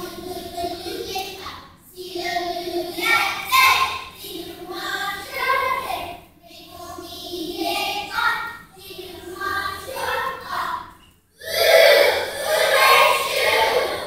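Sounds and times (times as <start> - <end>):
children's choir singing: 0.0 - 14.0.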